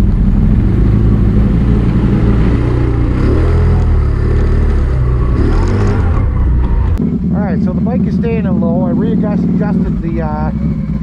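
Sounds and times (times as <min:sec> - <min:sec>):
atv engine running: 0:00.0 - 0:11.0.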